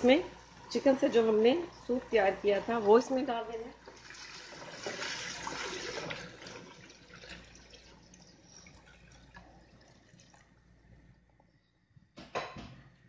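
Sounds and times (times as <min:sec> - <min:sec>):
broth pouring into metal pot: 0:03.7 - 0:10.8.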